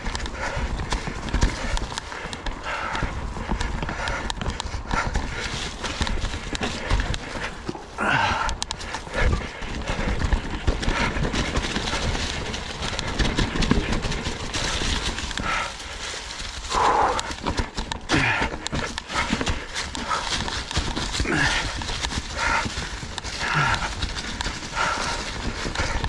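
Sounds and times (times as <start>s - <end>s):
bike rattling over rocks: 0.0s - 26.0s.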